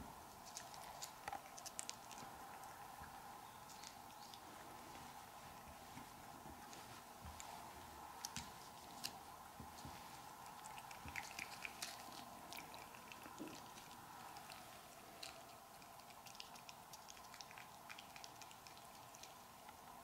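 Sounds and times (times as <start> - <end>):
steady hum: 0.0 - 20.0
cat licking wet clicks: 0.5 - 2.8, 10.4 - 19.8.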